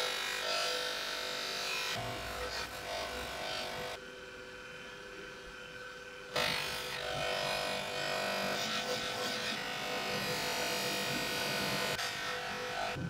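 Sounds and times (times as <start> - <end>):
polishing motor running: 6.2 - 13.0.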